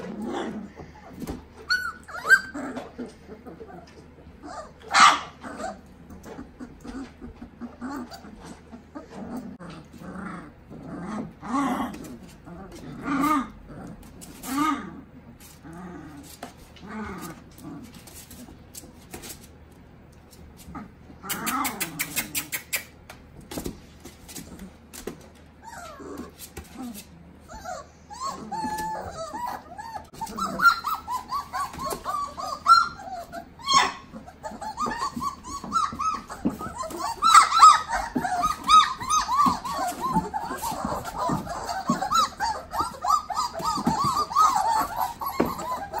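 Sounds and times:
puppies whining and yelping: 0.0s - 19.5s, 20.3s - 46.0s
scuffling: 34.4s - 46.0s.

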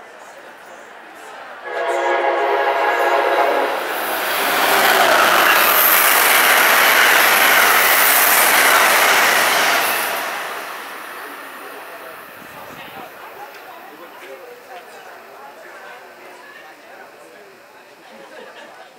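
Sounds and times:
train passing at speed: 0.1s - 18.0s
train horn chord: 1.6s - 3.9s.

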